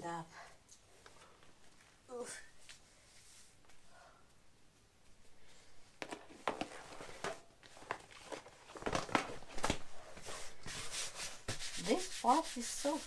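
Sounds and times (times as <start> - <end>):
plastic air mattress crinkling: 6.0 - 10.7.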